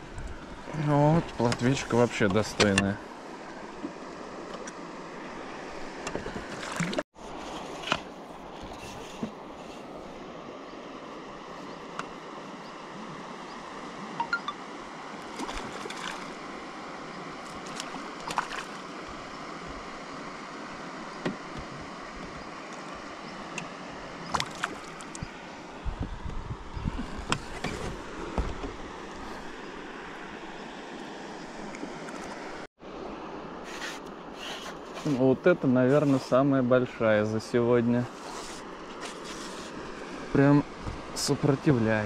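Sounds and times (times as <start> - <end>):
river water rushing: 0.0 - 8.8, 9.4 - 25.8, 35.7 - 42.0.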